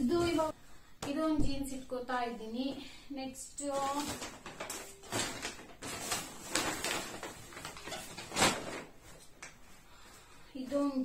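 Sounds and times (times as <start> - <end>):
clothes and bags rustling: 3.6 - 11.0.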